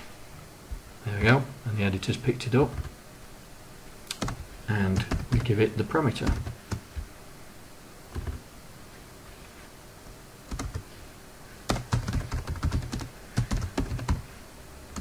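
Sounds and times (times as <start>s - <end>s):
computer keyboard typing: 4.1s - 5.6s, 6.2s - 7.0s, 8.1s - 8.4s, 10.5s - 10.8s, 11.7s - 14.2s.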